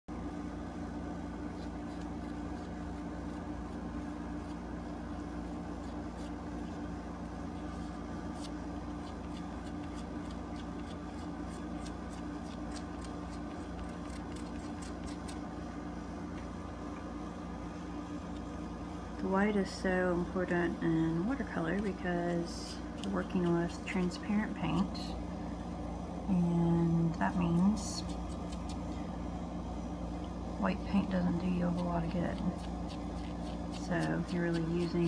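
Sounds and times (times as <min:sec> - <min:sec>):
steady low hum: 0:00.0 - 0:35.0
eraser rubbing paper: 0:31.6 - 0:35.0.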